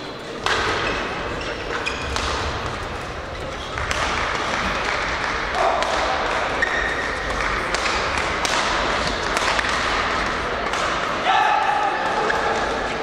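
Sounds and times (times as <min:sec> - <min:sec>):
sports hall noise: 0:00.0 - 0:13.0
rackets striking shuttlecocks: 0:00.3 - 0:11.2
shoe squeak: 0:00.8 - 0:02.2, 0:06.5 - 0:07.2.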